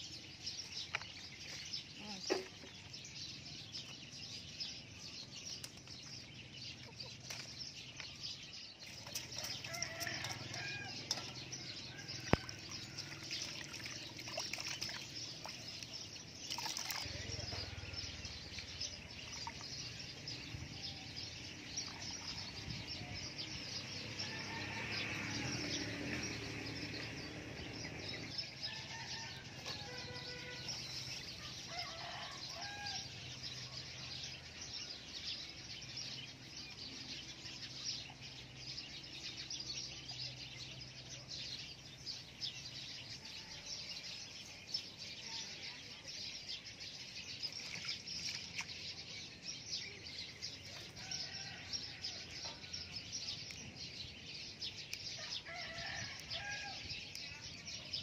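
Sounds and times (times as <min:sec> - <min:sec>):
small birds chirping: 0:00.0 - 0:24.4, 0:25.1 - 0:58.0
hands splashing in water: 0:12.2 - 0:17.3.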